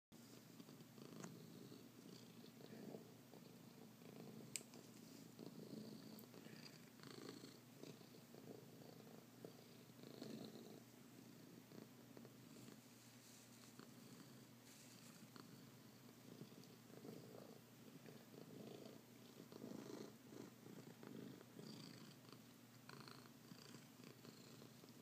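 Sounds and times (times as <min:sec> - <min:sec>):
cat purring: 0:00.2 - 0:25.0.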